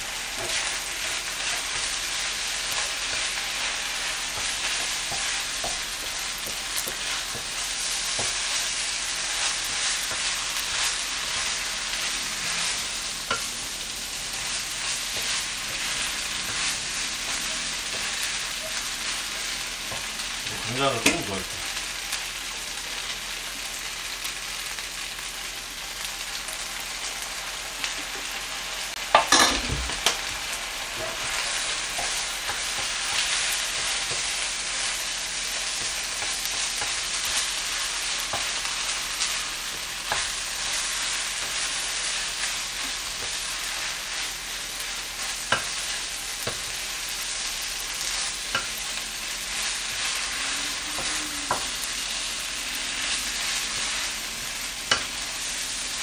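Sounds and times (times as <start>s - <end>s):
rice sizzling in a frying pan: 0.0s - 56.0s.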